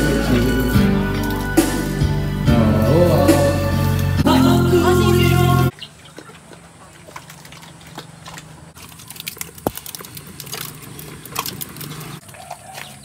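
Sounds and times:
pig eating wet clicks: 0:05.7 - 0:13.0.

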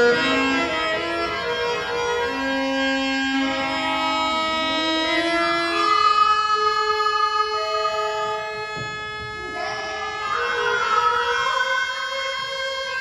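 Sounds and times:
indian classical style melody: 0:00.0 - 0:13.0.

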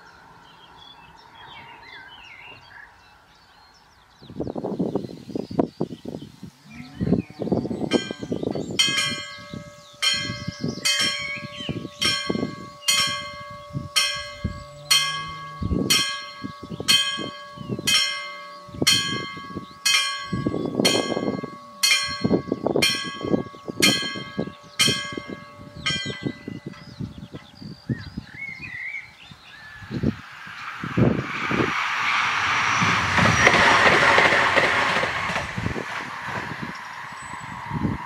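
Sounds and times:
level crossing bell ringing: 0:07.9 - 0:27.2.

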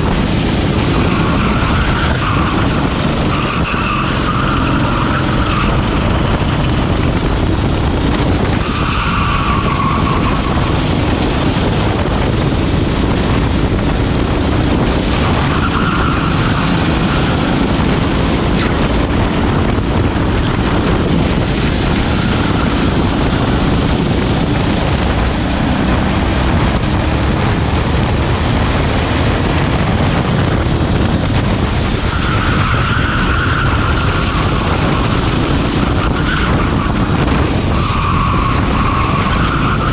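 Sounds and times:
go-kart engine running hard: 0:00.0 - 0:39.9
tyres squealing: 0:00.8 - 0:06.3, 0:08.6 - 0:10.8, 0:15.1 - 0:17.6.

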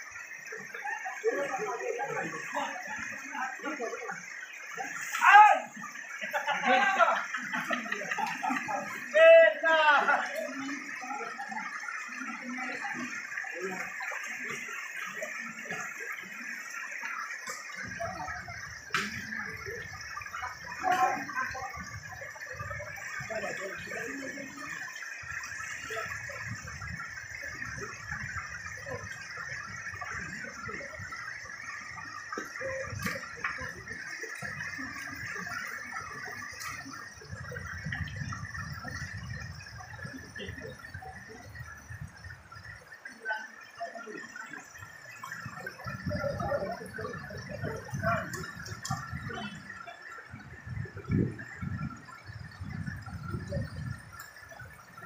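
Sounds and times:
low voices: 0:00.0 - 0:55.0
stream water rushing over stones: 0:00.0 - 0:55.0.

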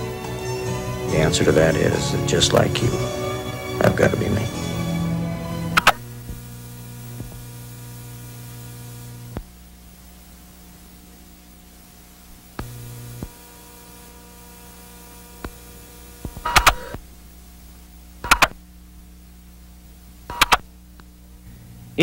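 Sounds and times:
mains hum and tape hiss: 0:00.0 - 0:22.0
sharp clicks: 0:05.7 - 0:06.4, 0:16.2 - 0:17.0, 0:18.2 - 0:18.6, 0:20.3 - 0:21.1.

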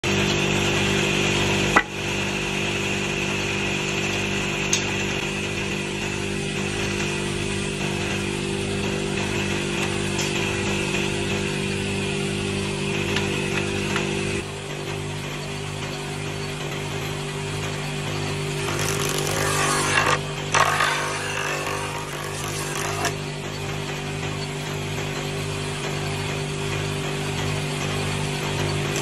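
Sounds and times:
woodworking machine motor hum: 0:00.1 - 0:29.0
wooden boards knocking: 0:18.7 - 0:23.1.

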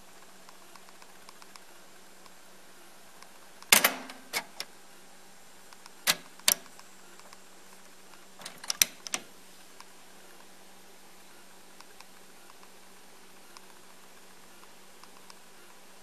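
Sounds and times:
faint steady hum: 0:00.0 - 0:16.0
cassette deck buttons clunking: 0:03.7 - 0:04.7, 0:06.1 - 0:06.7, 0:08.4 - 0:09.3.

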